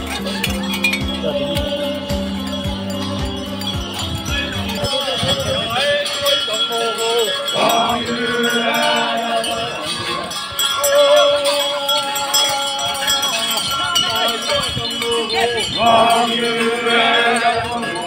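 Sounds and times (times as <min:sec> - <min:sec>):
men chanting together: 0:07.3 - 0:18.0.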